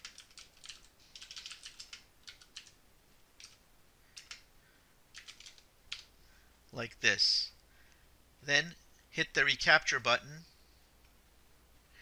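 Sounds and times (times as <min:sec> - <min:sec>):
keyboard typing: 0:00.0 - 0:02.8, 0:03.4 - 0:03.6, 0:04.2 - 0:04.5, 0:05.1 - 0:06.1.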